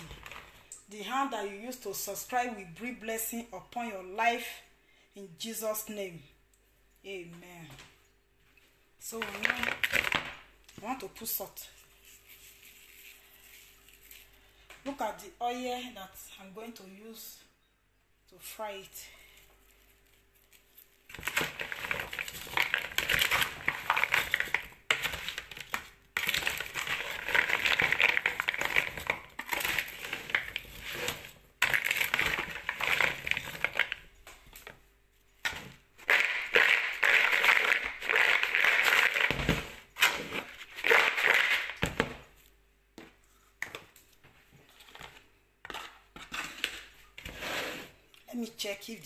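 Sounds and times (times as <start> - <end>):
wet potato sticks rustling in bowl: 9.0 - 14.7, 19.4 - 42.6.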